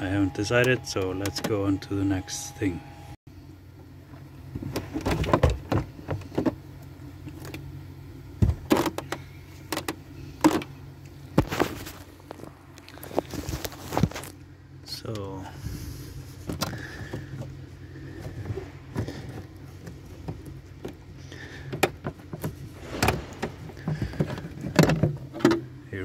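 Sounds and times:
carpet rustling: 11.3s - 14.5s, 16.1s - 25.8s.

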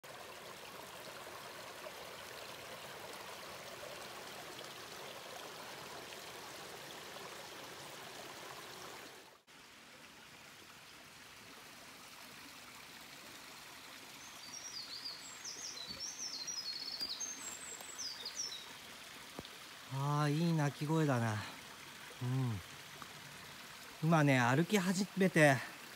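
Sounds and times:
stream trickling over rocks: 0.0s - 25.9s
songbird chirping: 14.2s - 18.8s.

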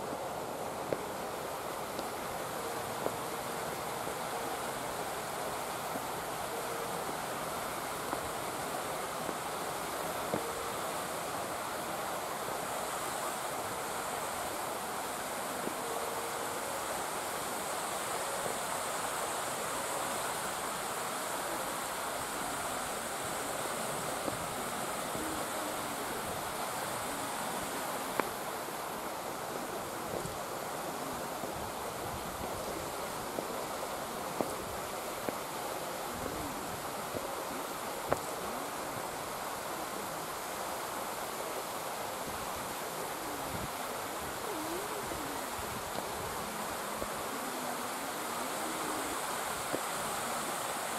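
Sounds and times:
outdoor background hiss: 0.0s - 50.9s.

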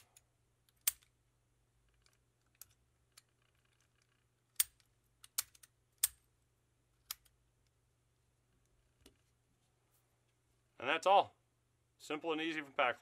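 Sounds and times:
padlock metallic clicks: 0.0s - 1.1s, 4.5s - 6.2s.

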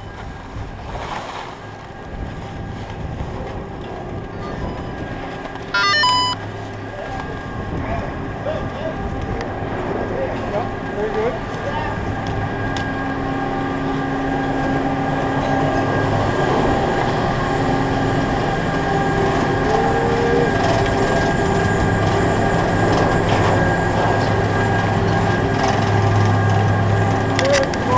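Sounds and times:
chairlift machinery humming: 1.7s - 27.9s
short rising whine: 5.8s - 6.4s.

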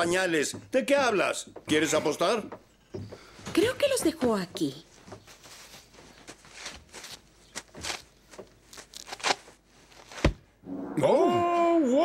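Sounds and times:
faint rustling and light taps: 0.0s - 10.4s.

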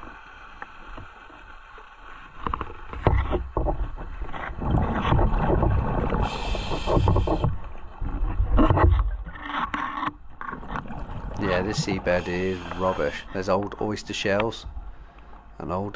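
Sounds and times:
regulator hissing inhalation: 6.2s - 7.5s, 11.7s - 13.3s.

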